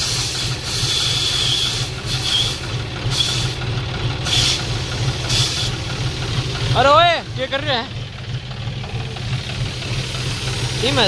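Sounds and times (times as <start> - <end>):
air hissing from tyre valve: 0.0 - 6.3, 9.4 - 11.0
tractor engine idling: 0.0 - 11.0.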